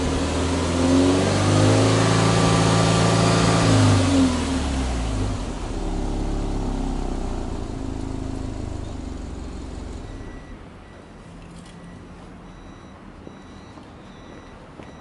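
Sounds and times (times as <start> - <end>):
car engine revs falling: 0.0 - 10.6.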